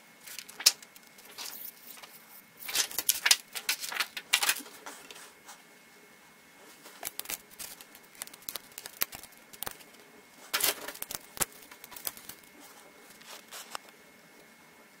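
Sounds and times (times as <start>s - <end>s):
plastic film crinkling: 0.3s - 4.8s, 6.9s - 13.8s.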